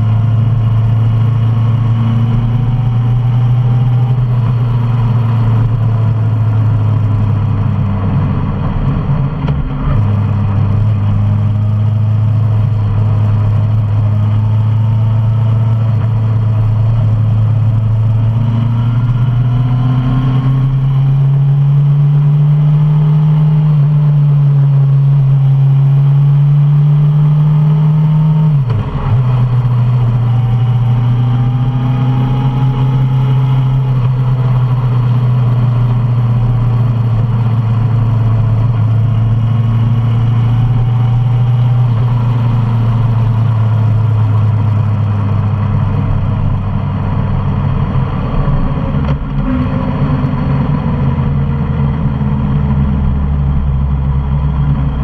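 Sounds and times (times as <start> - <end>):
motorcycle engine running: 27.8 - 55.0.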